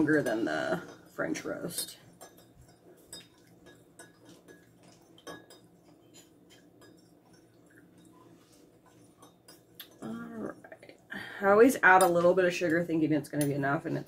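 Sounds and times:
spoon clinking against mug: 0:01.8 - 0:08.1.

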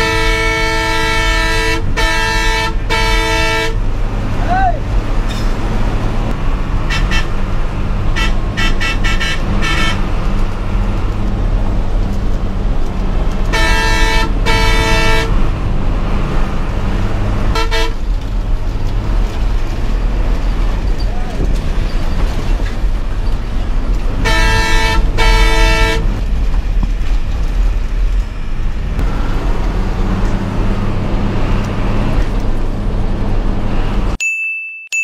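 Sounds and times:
bus horn toots: 0:00.0 - 0:03.8, 0:06.8 - 0:07.4, 0:08.0 - 0:10.2, 0:13.4 - 0:15.5, 0:17.4 - 0:18.1, 0:24.2 - 0:26.2
bus engine drone: 0:00.0 - 0:34.2.

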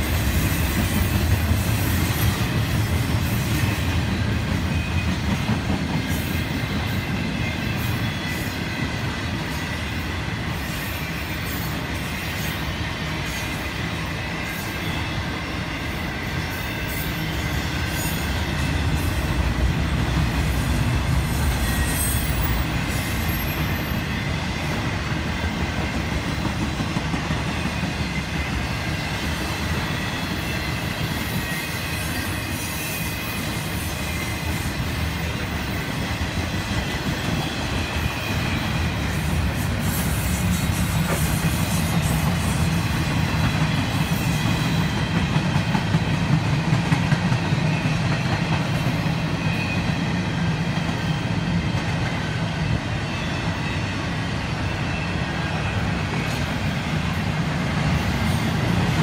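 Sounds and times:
freight train wheels rumbling: 0:00.0 - 0:59.0
high wheel squeals: 0:21.2 - 0:24.6.

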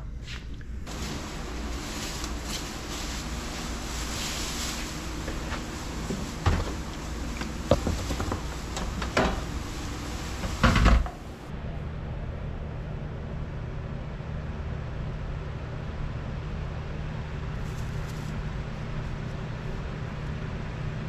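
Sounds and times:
plastic sheeting rustling: 0:00.8 - 0:11.5.

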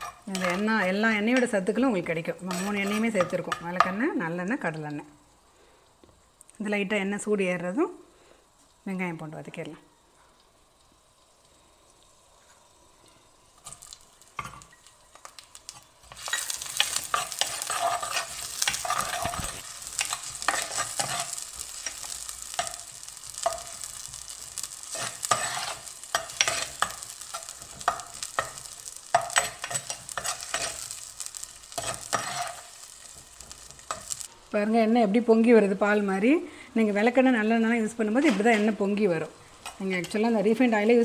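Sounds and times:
onions sizzling in oil: 0:00.0 - 0:41.0
spatula scraping a pot: 0:02.4 - 0:03.6, 0:16.1 - 0:22.0, 0:24.9 - 0:31.0, 0:31.7 - 0:34.2.

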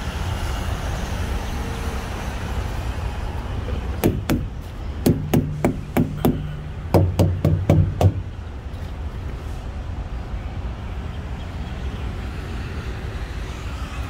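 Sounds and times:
tyres being thumped: 0:04.0 - 0:08.3.

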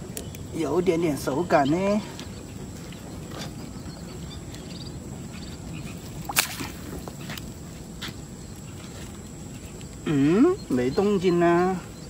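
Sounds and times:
net hauled through water: 0:05.9 - 0:07.2
sharp slap on water: 0:06.3 - 0:06.8.

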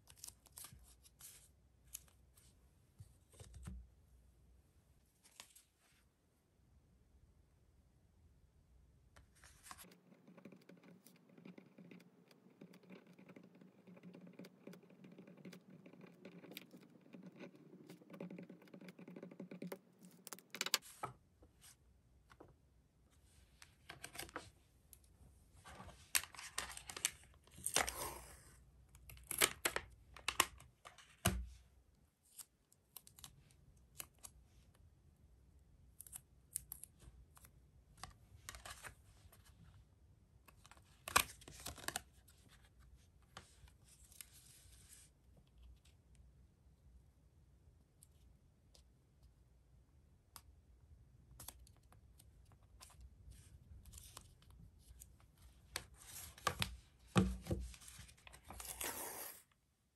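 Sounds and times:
soft scratching of cards: 0:00.0 - 0:03.8, 0:09.2 - 0:21.8, 0:40.6 - 0:46.0, 0:57.4 - 0:59.6
cards clicking and crinkling: 0:40.6 - 0:42.0.

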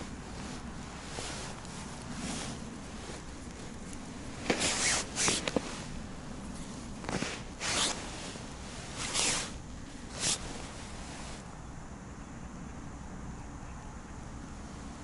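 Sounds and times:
jacket sleeves swishing: 0:00.0 - 0:11.4.

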